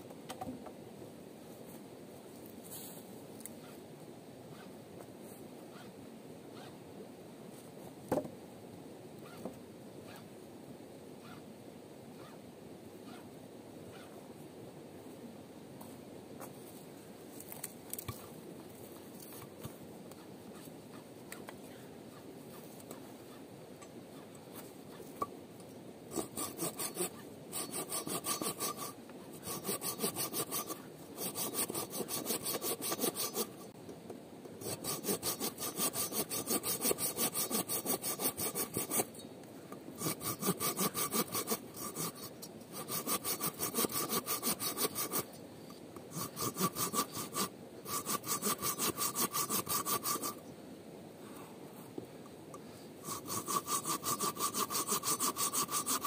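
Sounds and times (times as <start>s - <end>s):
hand saw cutting wood: 26.1s - 33.6s, 34.6s - 39.1s, 40.0s - 45.3s, 46.1s - 50.4s, 53.0s - 56.0s.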